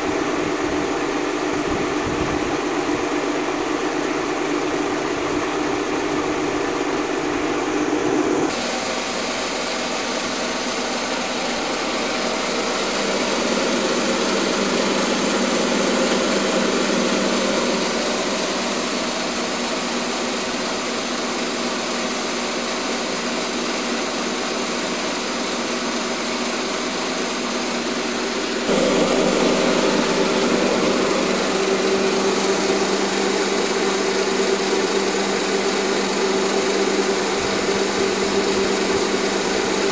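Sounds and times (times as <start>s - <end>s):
vibrating sieve motor hum: 0.0s - 21.7s, 27.9s - 39.9s.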